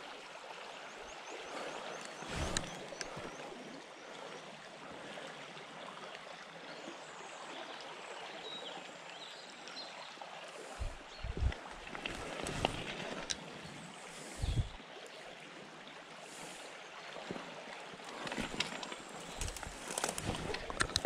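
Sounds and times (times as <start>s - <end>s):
low thumps: 10.8s - 11.6s.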